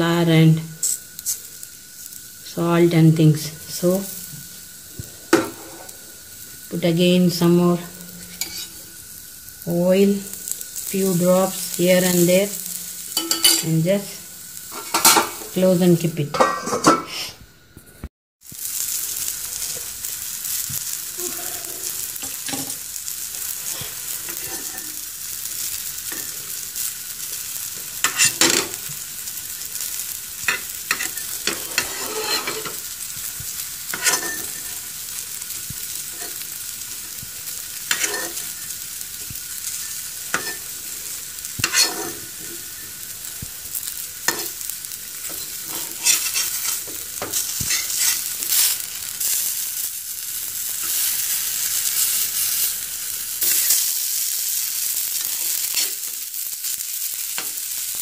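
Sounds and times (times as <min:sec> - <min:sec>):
vegetables sizzling in a pan: 0:00.0 - 0:58.0.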